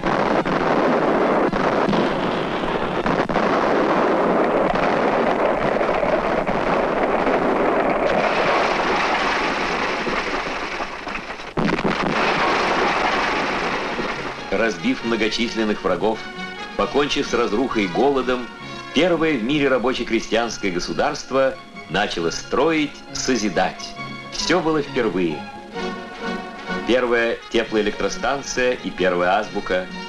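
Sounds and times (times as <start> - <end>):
sharp gunshot cracks: 0.0 - 15.3
gunfire and explosions rumble: 0.0 - 30.0.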